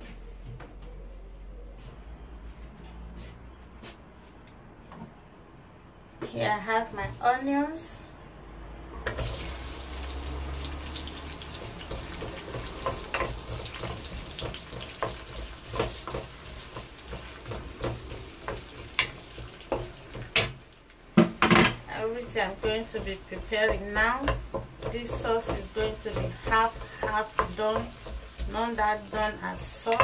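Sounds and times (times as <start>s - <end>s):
onions sizzling in oil: 9.0s - 30.0s
wooden spatula scraping a pan: 9.1s - 20.5s, 21.6s - 30.0s.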